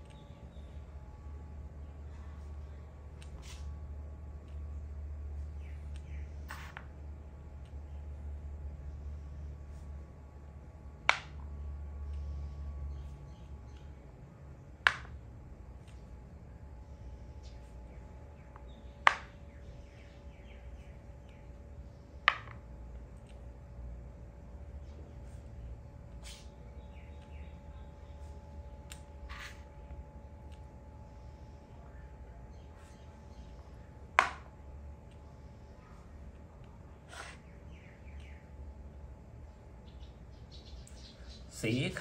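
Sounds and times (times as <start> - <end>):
faint bird chirps: 5.4 - 6.7, 16.8 - 22.2, 24.8 - 29.8, 37.0 - 39.0, 39.8 - 42.0.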